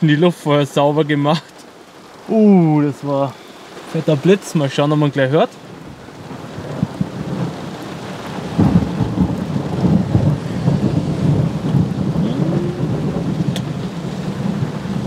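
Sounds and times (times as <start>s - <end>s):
rolling thunder: 5.8s - 15.0s.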